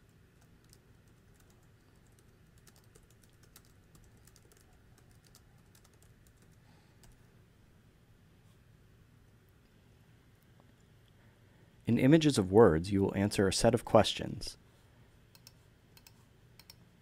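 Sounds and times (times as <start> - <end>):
faint keyboard typing: 0.0 - 7.3, 15.3 - 16.9.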